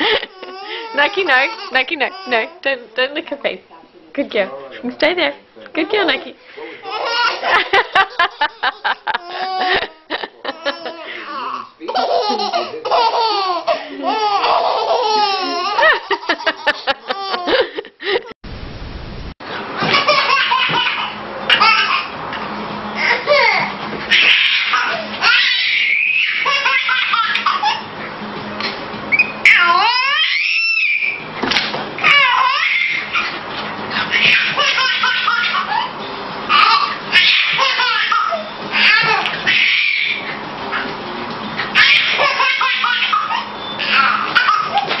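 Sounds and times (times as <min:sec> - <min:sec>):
baby laughing: 0:00.0 - 0:02.6, 0:06.7 - 0:18.4, 0:19.8 - 0:22.2, 0:23.0 - 0:27.9, 0:32.0 - 0:33.4, 0:34.0 - 0:40.9, 0:41.7 - 0:45.0.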